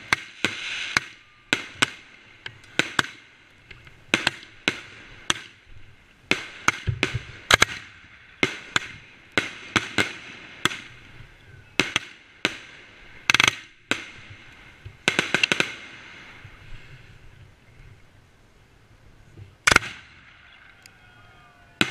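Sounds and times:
fireworks bangs and cracks: 0:00.0 - 0:03.3, 0:11.8 - 0:16.5.

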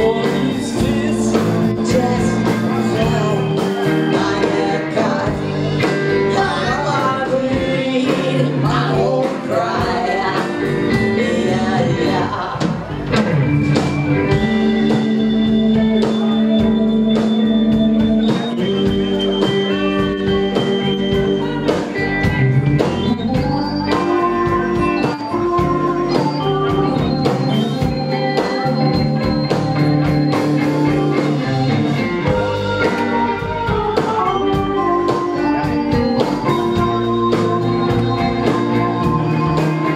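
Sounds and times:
person singing: 0:00.0 - 0:13.0, 0:23.1 - 0:29.6
held organ chords: 0:00.0 - 0:39.9
live rock band playing: 0:00.0 - 0:39.9.

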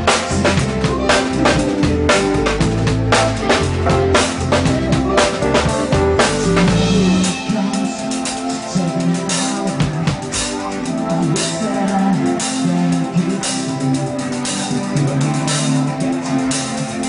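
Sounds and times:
drum kit beat: 0:00.0 - 0:17.0
electric bass line: 0:00.0 - 0:17.0
electric guitars: 0:00.0 - 0:17.0.

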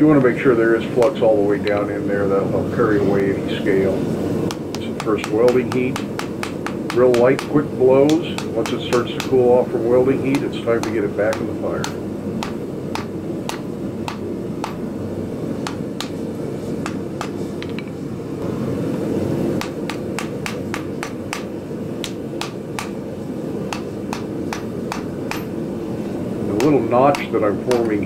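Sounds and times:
low background rush: 0:00.0 - 0:28.0
hammer striking hot steel on anvil: 0:04.5 - 0:09.6, 0:10.2 - 0:14.9, 0:15.6 - 0:16.2, 0:16.8 - 0:18.0, 0:19.6 - 0:23.0, 0:23.7 - 0:25.6, 0:26.5 - 0:28.0.

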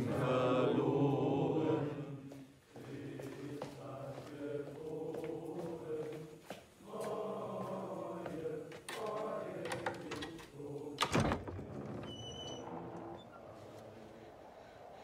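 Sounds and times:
voices chanting slowly: 0:00.0 - 0:15.0.

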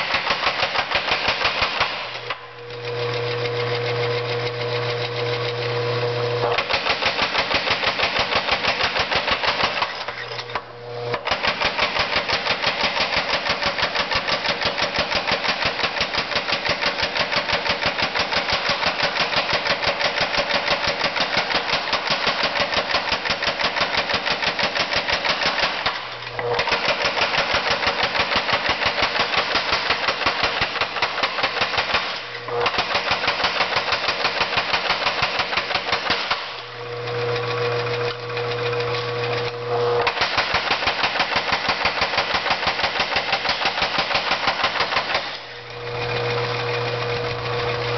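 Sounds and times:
power hammer striking: 0:00.0 - 0:47.9
electric motor hum: 0:02.0 - 0:06.7, 0:36.6 - 0:40.1, 0:45.4 - 0:47.9.

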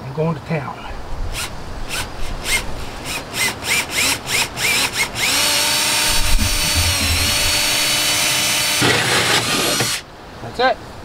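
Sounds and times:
cordless drill hole saw cutting: 0:01.4 - 0:10.1.

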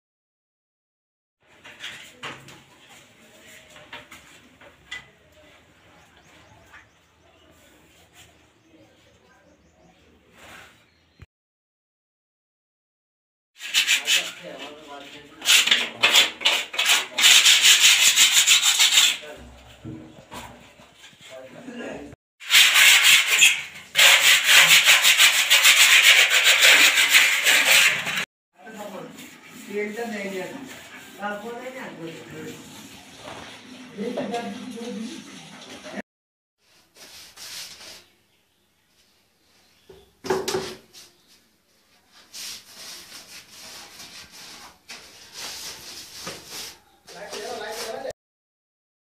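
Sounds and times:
hand tool scraping plaster: 0:13.6 - 0:19.6, 0:22.4 - 0:28.2
paintbrush scrubbing on a wall: 0:13.6 - 0:21.5, 0:22.4 - 0:36.0, 0:36.6 - 0:38.2, 0:40.5 - 0:48.1.

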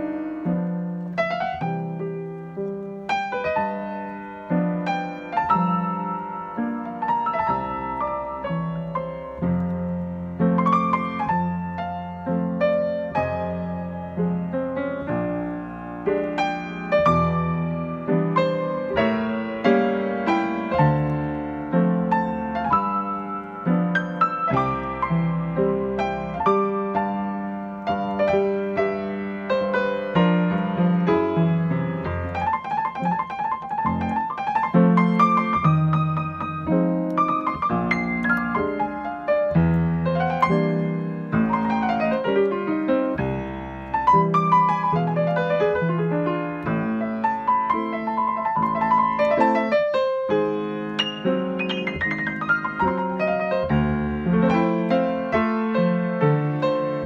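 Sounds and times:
solo piano playing: 0:00.0 - 0:57.0.

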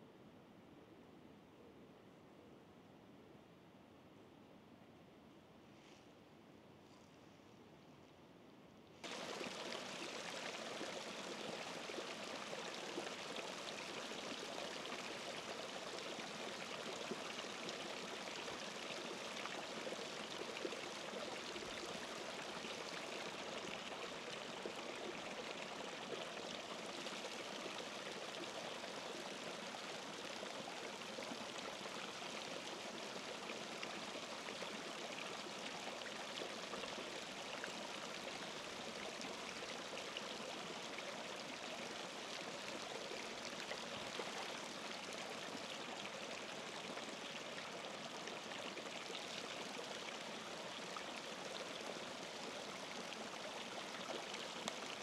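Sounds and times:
running water: 0:09.0 - 0:55.0.

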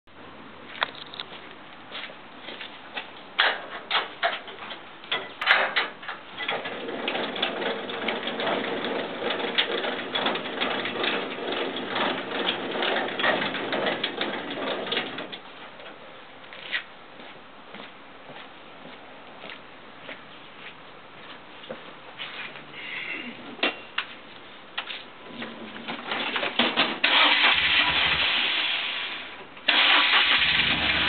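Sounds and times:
metal clicks and clanks: 0:03.4 - 0:15.4
rapid metal clicking and rattling: 0:03.4 - 0:15.5.

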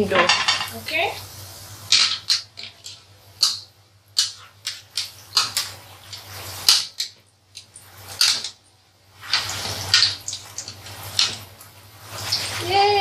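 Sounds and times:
skimmer swishing through oil: 0:09.2 - 0:13.0.

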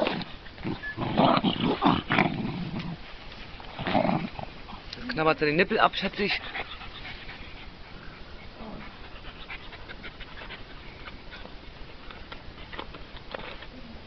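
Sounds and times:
dog panting: 0:05.9 - 0:12.8.

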